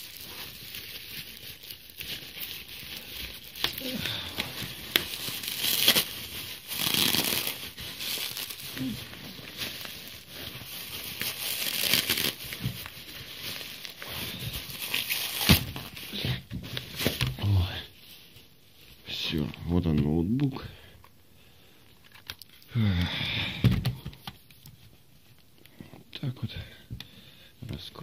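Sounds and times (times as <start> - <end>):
bubble wrap crinkling: 0.0 - 20.5.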